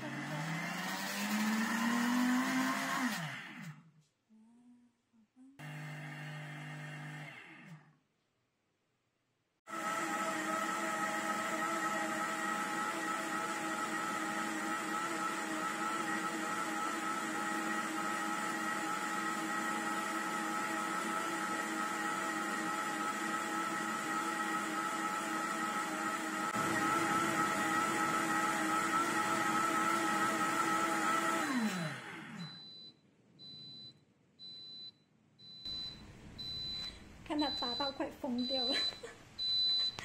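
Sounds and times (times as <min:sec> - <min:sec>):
blender motor running: 0:00.0 - 0:03.9, 0:05.6 - 0:07.9, 0:09.7 - 0:32.6.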